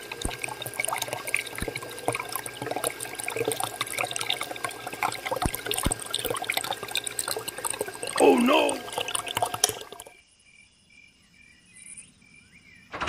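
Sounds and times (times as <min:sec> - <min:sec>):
liquid trickling and splashing: 0:00.0 - 0:10.2.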